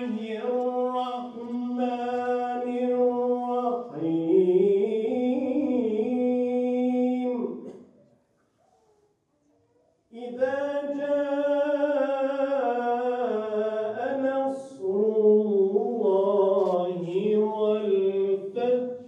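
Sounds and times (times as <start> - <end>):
man chanting: 0.0 - 7.7, 10.1 - 19.0.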